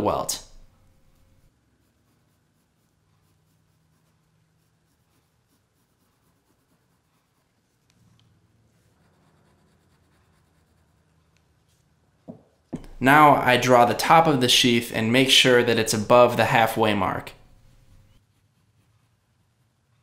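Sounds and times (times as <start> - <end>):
pencil scratching on paper: 0.4 - 12.0, 16.0 - 20.0.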